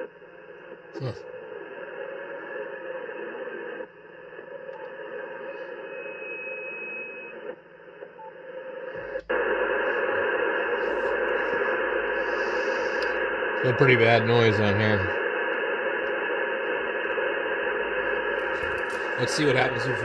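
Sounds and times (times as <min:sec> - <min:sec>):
radio band noise hiss: 0:00.0 - 0:06.2, 0:07.3 - 0:20.0
faint steady whistle: 0:04.7 - 0:08.4.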